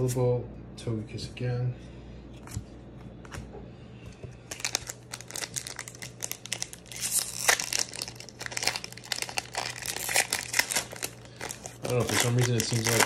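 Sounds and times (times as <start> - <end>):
foil wrapper tearing and crinkling: 4.5 - 13.0.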